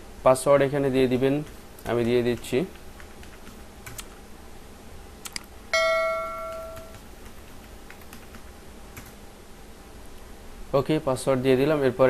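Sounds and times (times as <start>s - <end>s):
bell chime: 5.8s - 7.0s.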